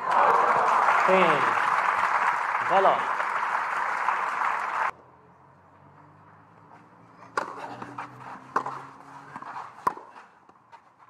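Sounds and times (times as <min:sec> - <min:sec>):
crowd applause: 0:00.0 - 0:04.9
tennis ball struck by rackets: 0:07.2 - 0:10.6.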